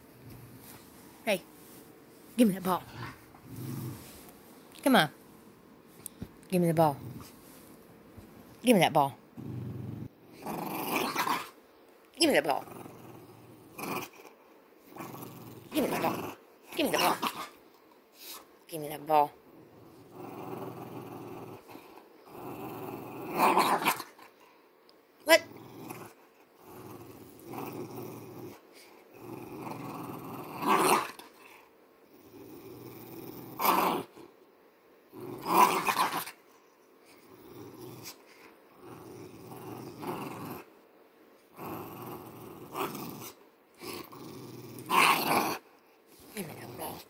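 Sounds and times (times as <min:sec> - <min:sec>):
dog growling: 0:02.8 - 0:04.2, 0:09.4 - 0:11.6, 0:12.4 - 0:17.6, 0:19.6 - 0:24.4, 0:25.3 - 0:34.3, 0:35.1 - 0:36.4, 0:37.1 - 0:40.7, 0:41.5 - 0:47.0.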